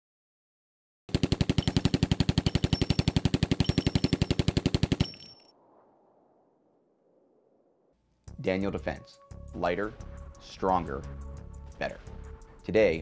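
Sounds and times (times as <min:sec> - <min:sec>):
automatic gunfire burst: 0:01.1 - 0:05.3
gunfire echo: 0:01.2 - 0:07.7.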